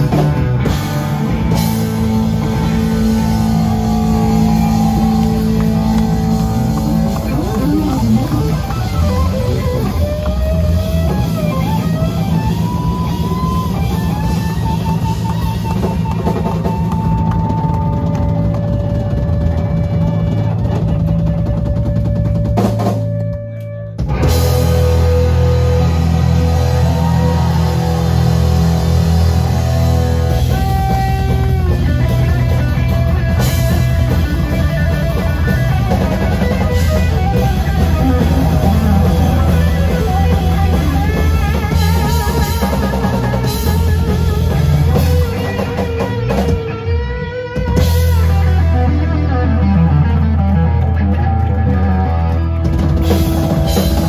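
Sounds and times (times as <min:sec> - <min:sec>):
sustained guitar lead notes: 0:00.0 - 0:17.4, 0:23.4 - 0:54.0
rock band playing loudly: 0:00.0 - 0:54.0.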